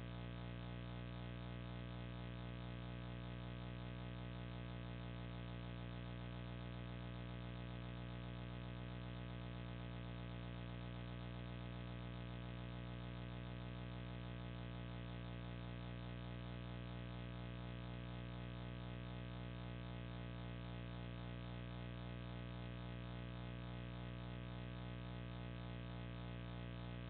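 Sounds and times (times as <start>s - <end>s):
steady electrical hum: 0.0s - 27.0s.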